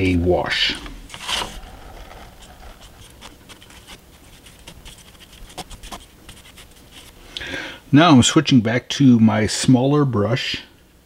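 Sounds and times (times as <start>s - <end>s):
paintbrush scratching on track: 1.1s - 7.2s.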